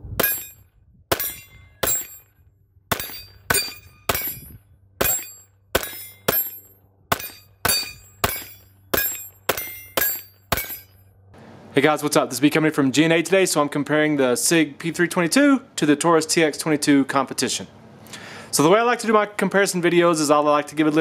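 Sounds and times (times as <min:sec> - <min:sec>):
pistol shots with ringing tail: 0:00.2 - 0:02.3, 0:02.9 - 0:11.0.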